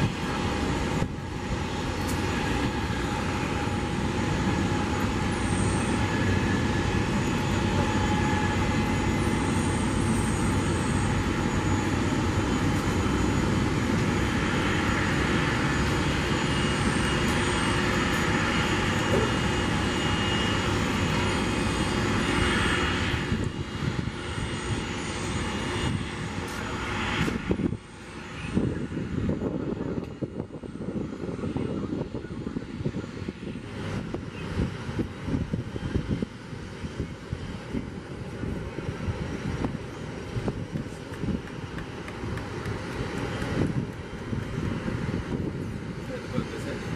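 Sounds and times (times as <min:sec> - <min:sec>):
jet airliner idling: 0:00.0 - 0:46.9.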